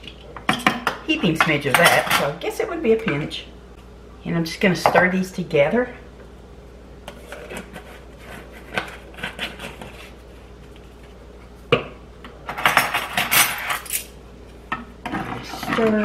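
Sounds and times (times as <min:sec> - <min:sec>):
metal utensils clattering: 0:00.5 - 0:02.4, 0:12.5 - 0:14.1.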